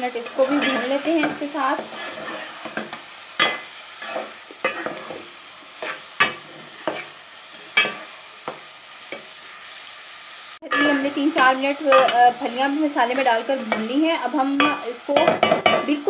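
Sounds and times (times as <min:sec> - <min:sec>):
beans sizzling: 0:00.0 - 0:16.0
metal spatula scraping a pot: 0:00.1 - 0:09.8, 0:10.7 - 0:12.2.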